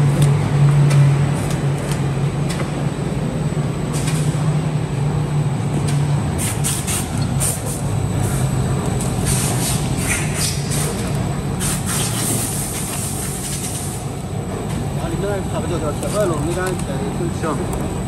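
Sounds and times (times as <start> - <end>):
die-cutting machine running: 7.0 - 18.0.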